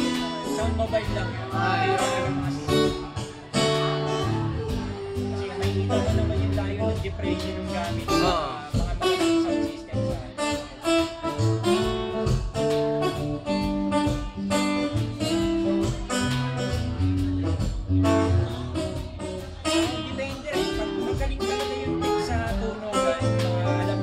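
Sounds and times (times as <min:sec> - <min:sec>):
person singing: 0:00.0 - 0:09.2
acoustic guitar: 0:00.0 - 0:24.0
percussive beat: 0:00.0 - 0:24.0.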